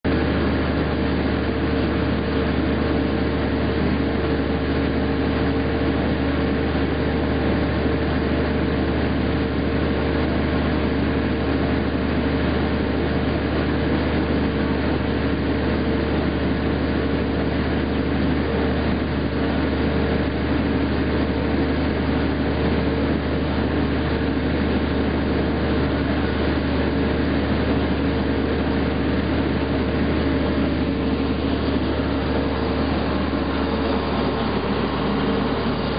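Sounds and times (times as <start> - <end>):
shot blasting machine running: 25.7 - 35.9.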